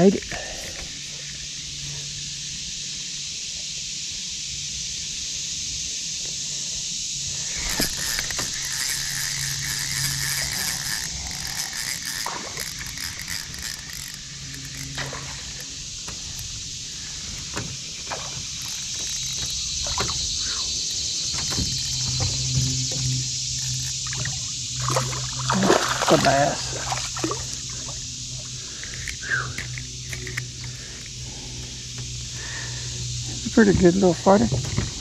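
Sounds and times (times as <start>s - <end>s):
electric motor hum: 0.0s - 35.0s
fishing reel clicking: 7.4s - 16.8s, 18.5s - 20.7s, 23.4s - 31.3s
lure splashing in water: 7.6s - 15.8s, 24.0s - 28.0s.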